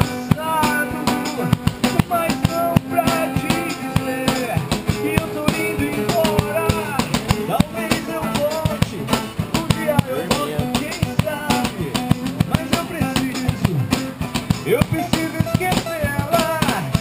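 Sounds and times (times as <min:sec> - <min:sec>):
drum kit beat: 0:00.0 - 0:17.0
guitar: 0:00.0 - 0:17.0.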